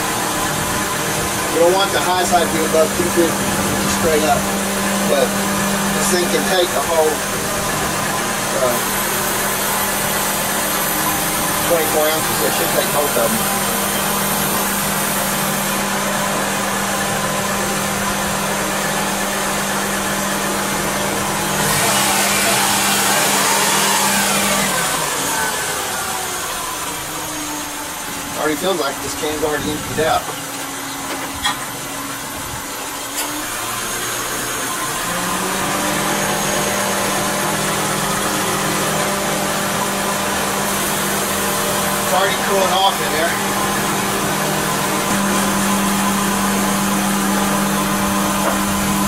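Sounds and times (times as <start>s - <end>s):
car engine idling: 0.0s - 35.2s.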